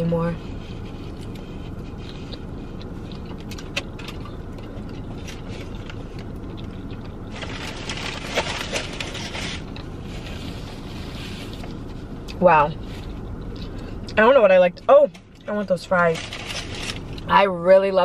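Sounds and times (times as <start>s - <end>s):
low car cabin hum: 0.0s - 18.0s
chewing and mouth clicks: 1.1s - 7.3s, 13.0s - 14.2s
crinkly foil rustling: 7.2s - 11.9s, 15.5s - 17.3s.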